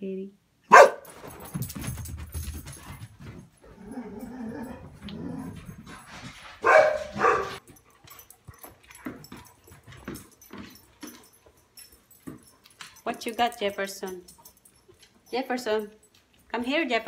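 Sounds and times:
dog barking: 0:00.7 - 0:01.2, 0:06.6 - 0:07.6.

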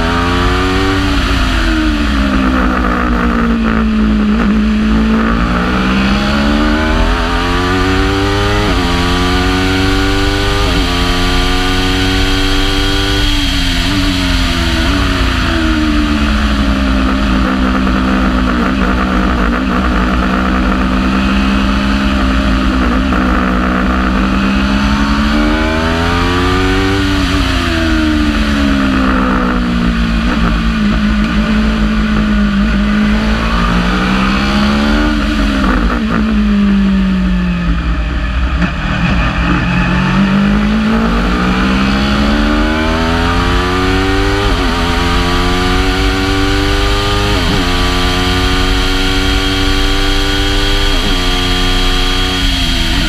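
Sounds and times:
motorcycle engine revving: 0:00.0 - 0:53.0
wind and road rush: 0:00.0 - 0:53.0.

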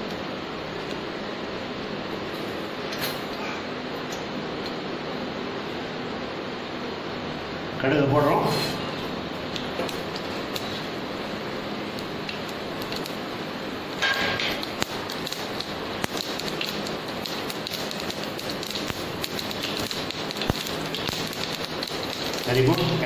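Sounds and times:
seeds sizzling in hot oil: 0:09.5 - 0:23.0.

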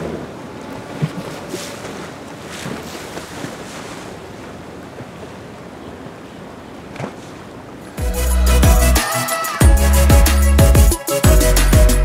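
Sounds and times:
water splashes: 0:00.0 - 0:08.0
boat wake water wash: 0:00.0 - 0:10.3.

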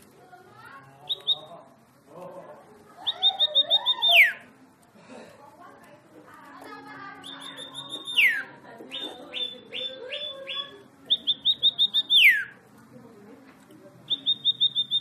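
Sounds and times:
songbird singing: 0:01.0 - 0:01.6, 0:03.0 - 0:04.5, 0:07.1 - 0:12.6, 0:14.0 - 0:15.0.

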